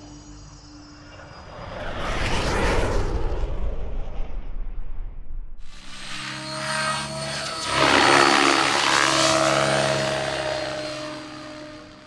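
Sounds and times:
helicopter passing by: 5.6s - 12.0s.

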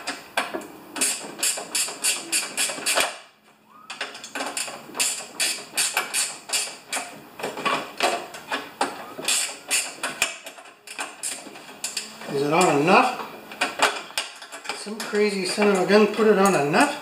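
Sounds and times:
ratchet wrench clicking: 1.0s - 3.1s, 4.2s - 7.0s, 9.3s - 12.0s.

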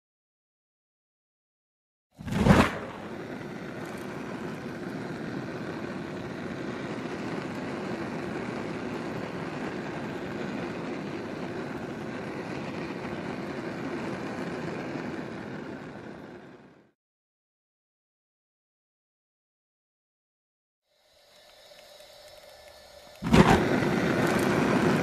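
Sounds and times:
gas burner flame roaring: 2.2s - 17.0s, 20.9s - 25.0s.

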